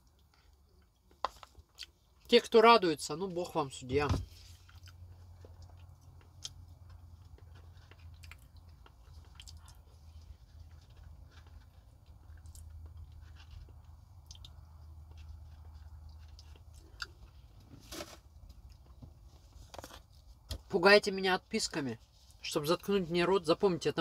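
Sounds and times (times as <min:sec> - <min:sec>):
person chewing food: 0:00.0 - 0:02.3, 0:04.4 - 0:17.8.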